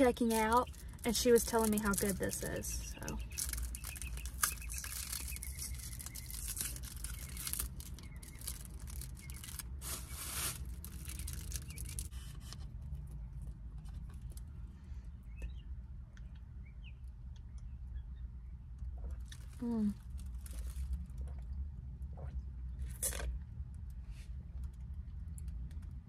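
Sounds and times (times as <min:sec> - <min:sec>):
packaging crinkling and tearing: 0:00.0 - 0:12.2.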